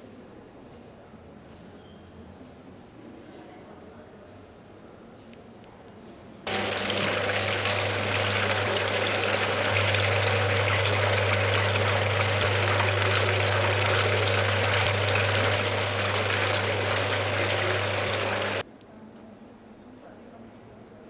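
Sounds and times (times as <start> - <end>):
low steady hum: 6.5 - 18.6
rushing water-like noise: 6.5 - 18.6.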